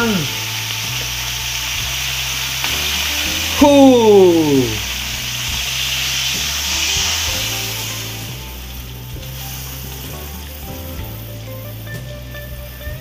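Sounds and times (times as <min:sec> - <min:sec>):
background music: 0:00.0 - 0:13.0
lobsters sizzling in butter: 0:00.0 - 0:13.0.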